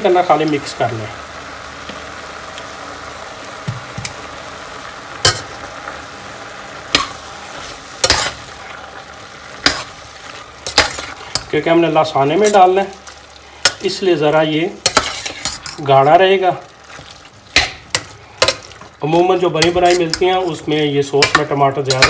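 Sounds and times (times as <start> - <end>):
frying sizzle: 0.0 - 22.0
spoon stirring in pot: 7.0 - 8.5, 9.5 - 11.6, 14.8 - 16.0, 16.8 - 20.6, 21.2 - 22.0.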